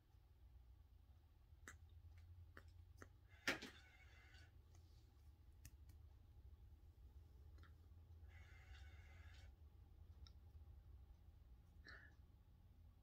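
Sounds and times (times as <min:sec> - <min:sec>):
faint clicks and taps: 0:04.6 - 0:06.2.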